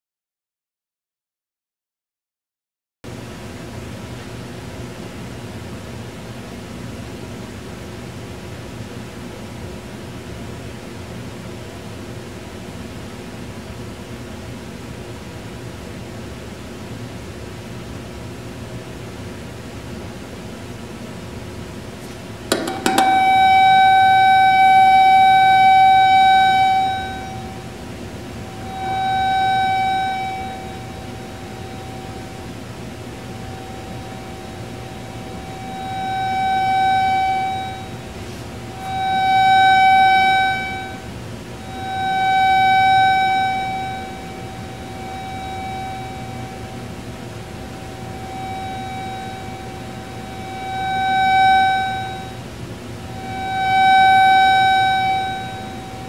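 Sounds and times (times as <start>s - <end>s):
steady electronic tone: 22.5s - 56.0s.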